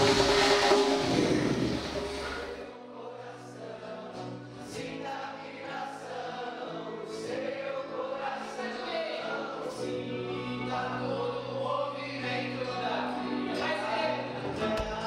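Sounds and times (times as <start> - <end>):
held low drone note: 0.0 - 2.7
voices chanting together: 0.0 - 15.0.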